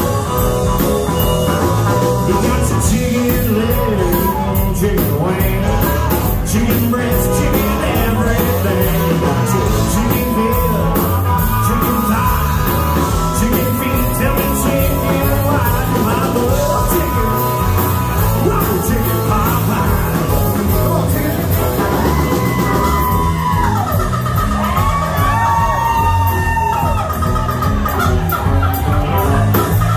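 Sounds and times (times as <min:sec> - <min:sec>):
bass: 0:00.0 - 0:29.9
drums: 0:00.0 - 0:29.9
electric guitar: 0:00.0 - 0:29.9
harmonica: 0:00.0 - 0:29.9
person singing: 0:01.6 - 0:23.9.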